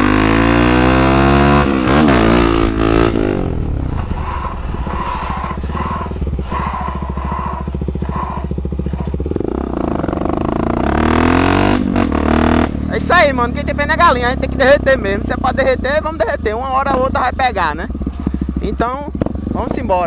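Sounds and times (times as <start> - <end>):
motorcycle engine revving: 0.0 - 20.0
scraping on asphalt: 3.2 - 9.4.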